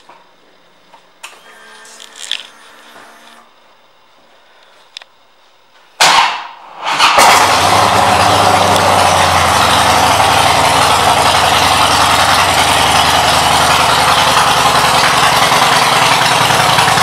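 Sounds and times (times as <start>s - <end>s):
fuel pump electric whir: 1.2s - 3.6s
motorcycle engine running: 7.4s - 17.0s.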